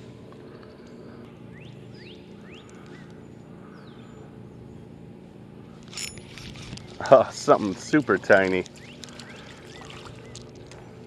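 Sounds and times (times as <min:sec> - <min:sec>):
bird chirping: 0:01.5 - 0:04.7.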